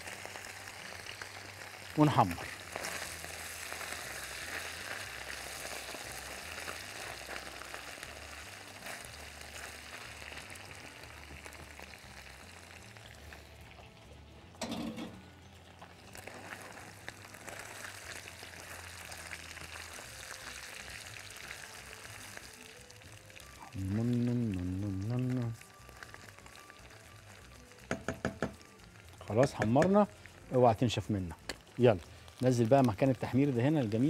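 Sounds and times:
meat sizzling in a wok: 0.0 - 34.0
knock: 27.9 - 28.6.

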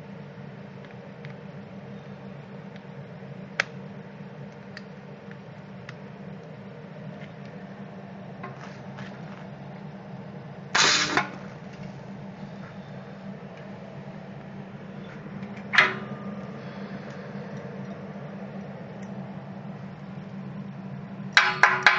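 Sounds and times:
steady low hum: 0.0 - 21.9
stud weld crackling burst: 10.8 - 11.7.

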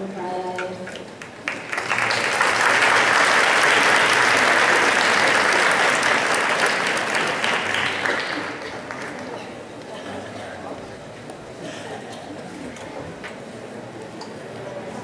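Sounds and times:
audience applauding: 1.2 - 9.6.

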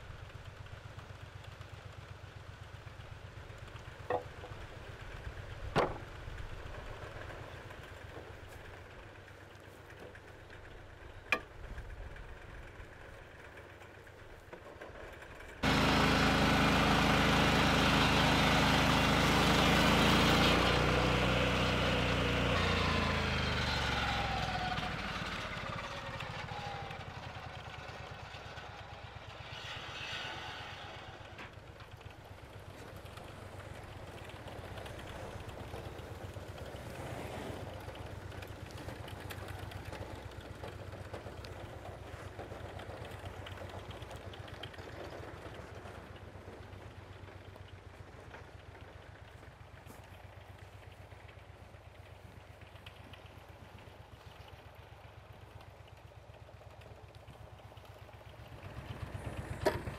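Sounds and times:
sawmill engine running: 0.0 - 59.9
boards knocking when stacked: 5.8 - 6.0
circular blade sawing log: 28.4 - 31.7.

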